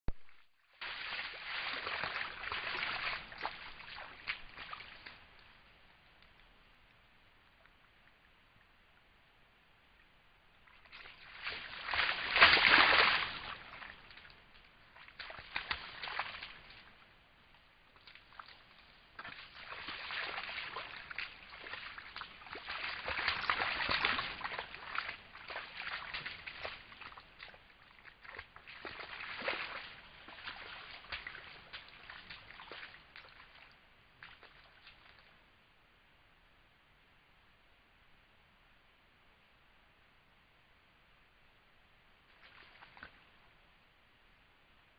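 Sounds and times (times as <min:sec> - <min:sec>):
deer splashing in muddy water: 0:00.7 - 0:06.1, 0:10.6 - 0:35.4, 0:42.3 - 0:43.5.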